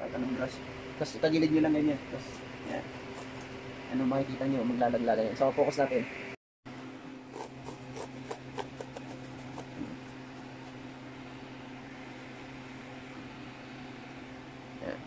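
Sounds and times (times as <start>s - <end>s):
steady low hum: 0.0s - 15.0s
brush scratching plastic casing: 2.2s - 3.5s, 7.3s - 10.9s.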